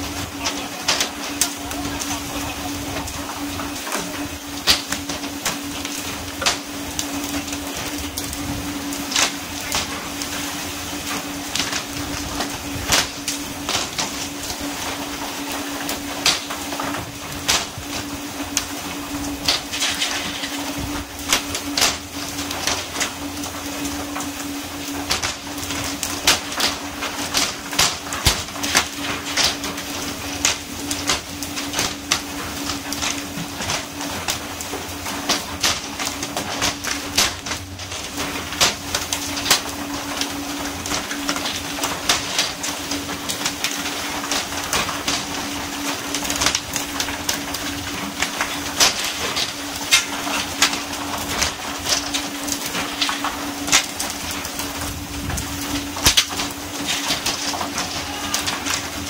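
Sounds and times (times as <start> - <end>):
boat engine hum: 0.0 - 19.5.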